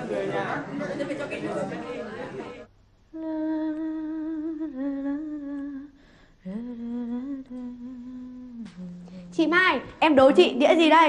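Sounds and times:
woman humming: 3.1s - 9.4s.

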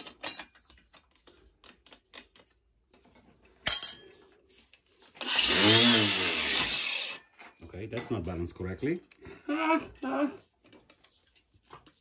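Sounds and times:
angle grinder running: 5.2s - 7.2s.

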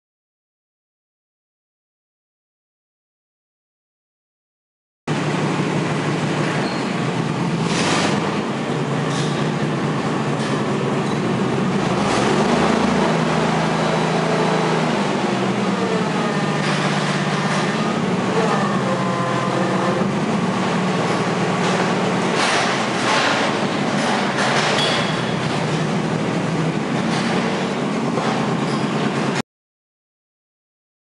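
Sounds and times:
forklift hydraulic whine: 5.1s - 29.4s
forklift machine hum: 5.1s - 29.4s.

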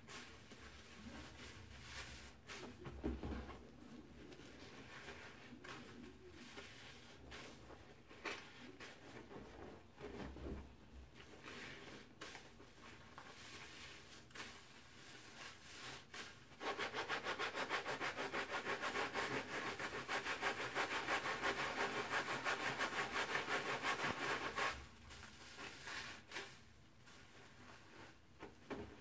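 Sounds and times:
soapy sponges squishing: 11.1s - 16.6s.

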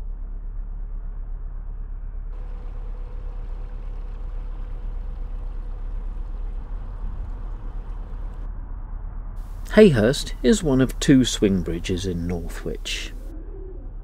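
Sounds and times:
boat diesel engine rumbling: 2.4s - 8.5s, 9.4s - 13.3s
faint steady tone: 2.4s - 8.5s, 9.4s - 13.4s.

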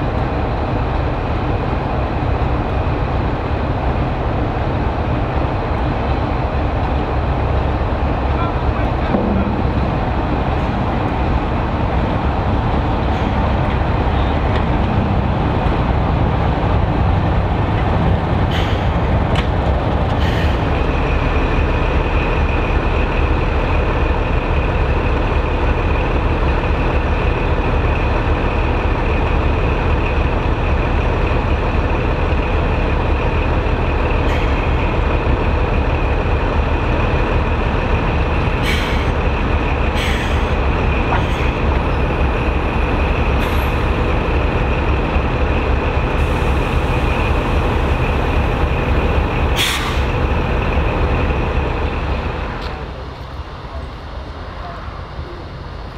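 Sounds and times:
diesel locomotive engine running: 0.0s - 55.9s
sharp metallic clanks: 9.1s - 11.2s.

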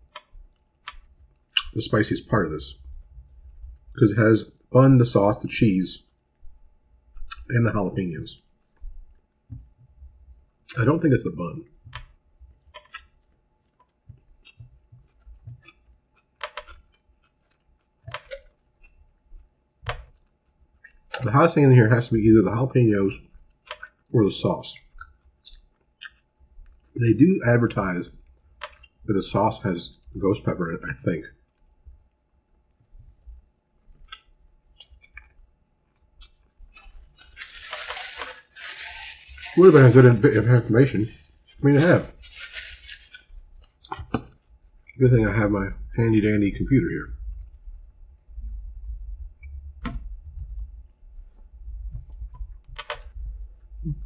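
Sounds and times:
crunchy chewing clicks: 0.0s - 1.8s, 11.6s - 21.3s, 23.2s - 24.2s, 24.8s - 27.0s, 28.1s - 29.1s, 31.3s - 39.8s, 42.2s - 45.0s
person chewing crispy food: 12.1s - 21.2s, 24.8s - 27.0s, 33.3s - 40.4s, 41.1s - 44.9s
wet mouth clicks: 24.8s - 26.8s
paper napkin rustling: 37.2s - 43.3s.

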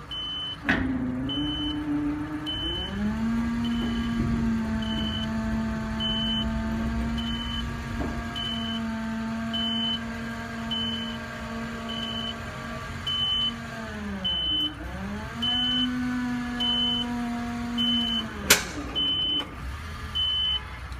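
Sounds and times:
hydraulic hook-lift humming: 0.0s - 20.6s
high warning beep: 0.1s - 0.6s, 1.3s - 1.9s, 2.5s - 2.9s, 3.6s - 4.2s, 4.8s - 5.4s, 6.0s - 6.5s, 7.2s - 7.7s, 8.4s - 8.9s, 9.5s - 10.0s, 10.7s - 11.2s, 11.9s - 12.4s, 13.1s - 13.6s, 16.6s - 17.1s, 17.8s - 18.3s, 19.0s - 19.5s, 20.2s - 20.6s.

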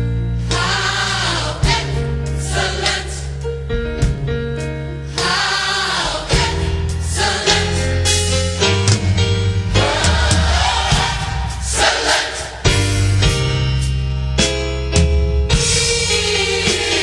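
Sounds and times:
bass and beat backing: 0.0s - 17.0s
choir singing: 0.4s - 3.4s, 5.1s - 8.1s, 9.7s - 12.9s, 15.6s - 17.0s.

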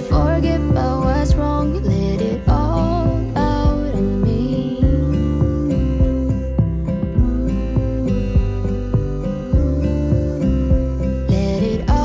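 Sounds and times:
strummed acoustic guitar music: 0.0s - 12.0s.

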